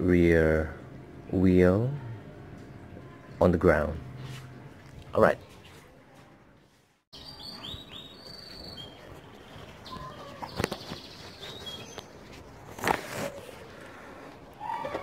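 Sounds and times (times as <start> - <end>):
outdoor background noise: 0.0 - 15.0
birds chirping: 7.2 - 12.6.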